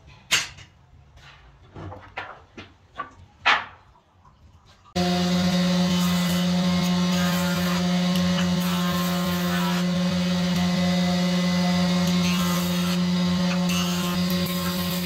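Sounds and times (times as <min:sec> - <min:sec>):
jointer machine humming: 0:05.0 - 0:15.0
wood fed across cutterhead: 0:05.0 - 0:15.0.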